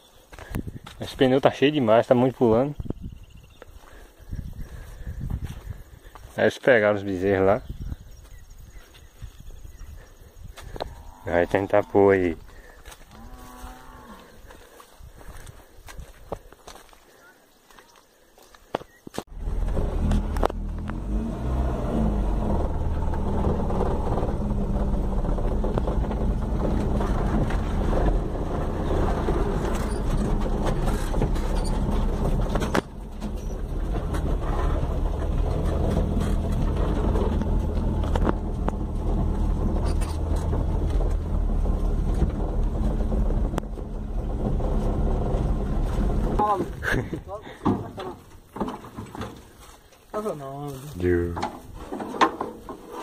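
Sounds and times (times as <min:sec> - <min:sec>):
low road rumble: 0:00.0 - 0:53.0
car engine running steadily: 0:19.3 - 0:46.5.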